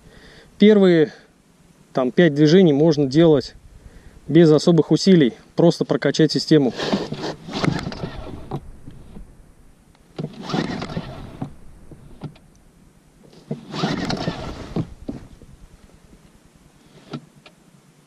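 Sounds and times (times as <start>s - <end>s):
recoil starter cord pulls: 6.7s - 9.2s, 10.1s - 12.5s, 13.2s - 15.4s.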